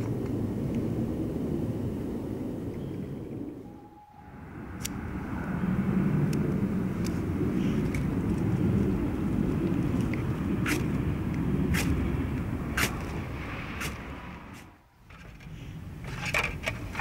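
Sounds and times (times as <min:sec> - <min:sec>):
low outdoor rumble: 0:00.0 - 0:17.0
metal camping kit clicking: 0:15.0 - 0:17.0.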